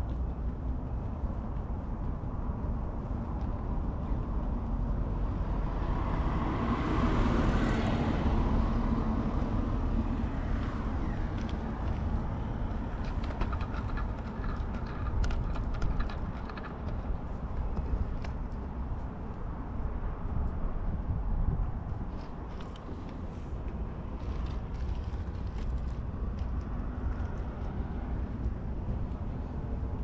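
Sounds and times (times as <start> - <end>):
outdoor background noise: 0.0 - 30.0
small clicks and rustles: 10.6 - 19.4, 22.1 - 29.5.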